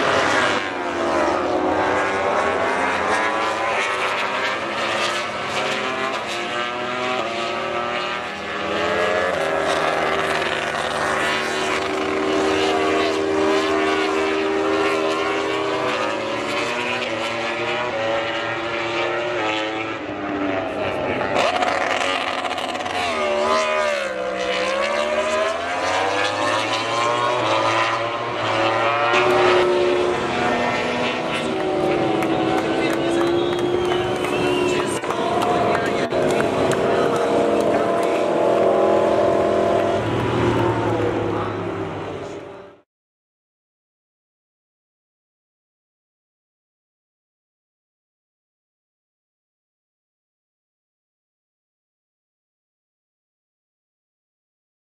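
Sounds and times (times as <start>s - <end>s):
motorcycle engines revving: 0.0s - 42.8s.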